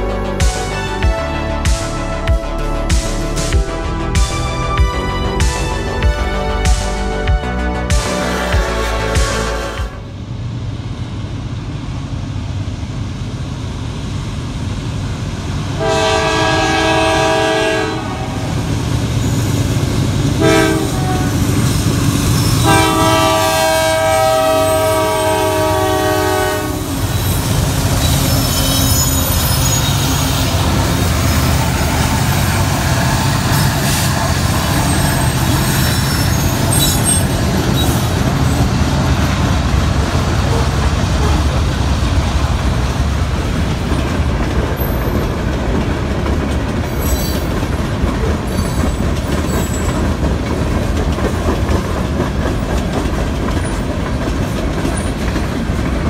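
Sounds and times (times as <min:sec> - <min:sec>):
train rumbling past: 0:00.0 - 0:56.0
locomotive air horn: 0:04.8 - 0:10.2, 0:15.8 - 0:18.5, 0:20.4 - 0:21.8, 0:22.4 - 0:38.6.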